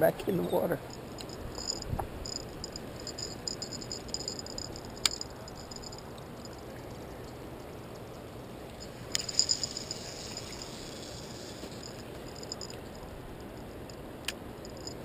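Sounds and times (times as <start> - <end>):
low background rush: 0.0 - 15.0
fishing reel clicking whir: 0.8 - 6.5, 9.1 - 13.7, 14.6 - 15.0.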